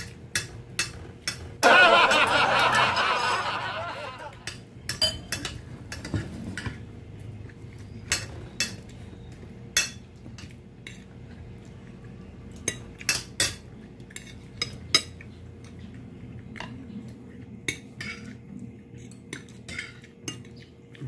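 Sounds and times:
cutlery clinking on glass plate: 4.4s - 6.8s, 8.0s - 9.0s, 9.7s - 11.1s.

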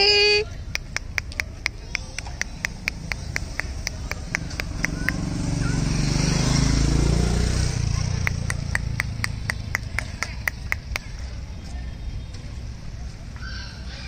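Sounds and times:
motorbike passing by: 1.4s - 11.8s.

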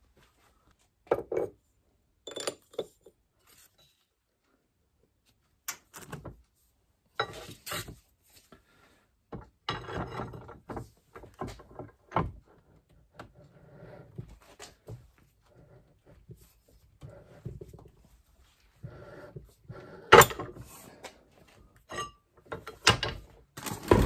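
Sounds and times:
steel parts clunking and scraping: 7.2s - 8.0s, 9.6s - 12.4s, 18.9s - 21.1s, 21.8s - 24.0s.

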